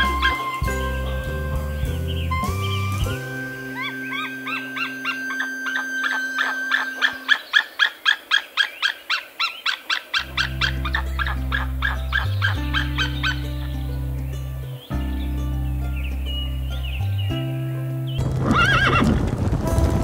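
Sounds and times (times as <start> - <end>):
background music with low notes: 0.0 - 7.4, 10.2 - 20.0
eagle calling: 0.0 - 13.8.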